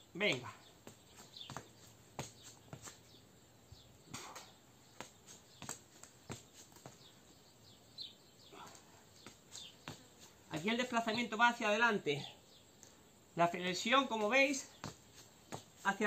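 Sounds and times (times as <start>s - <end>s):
faint bird chirps: 0.0s - 11.3s.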